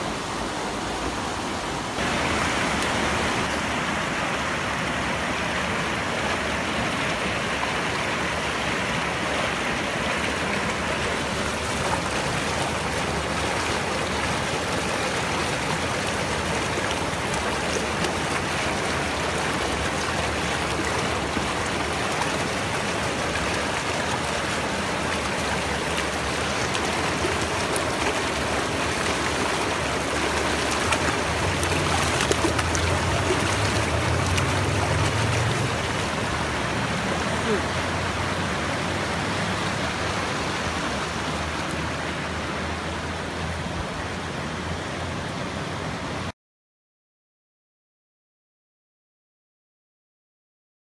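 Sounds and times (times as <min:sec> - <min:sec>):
river rushing over rocks: 0:00.0 - 0:46.3.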